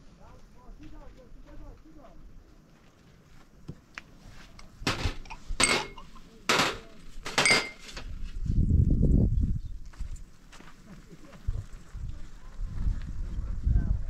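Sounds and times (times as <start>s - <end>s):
glasses clinking on metal tray: 4.9s - 7.9s.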